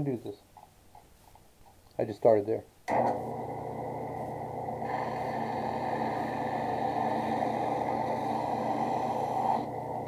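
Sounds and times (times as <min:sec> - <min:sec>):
drill press motor hum: 0:02.9 - 0:10.0.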